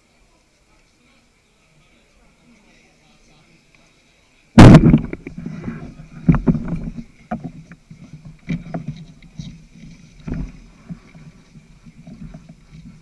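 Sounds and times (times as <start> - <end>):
heavier bumps: 4.6 - 7.0
handling knocks and rustles: 4.6 - 13.0.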